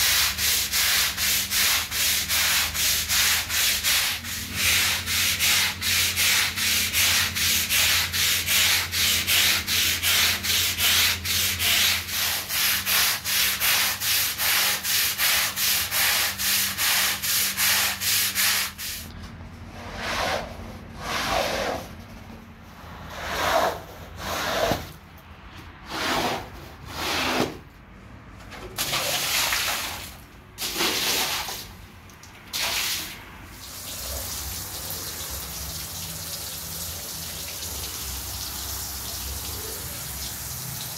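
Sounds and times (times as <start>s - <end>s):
push broom scrubbing a rug: 0.0s - 19.1s, 19.7s - 22.0s, 23.0s - 24.9s, 25.8s - 27.6s
water running onto rug: 28.8s - 40.9s.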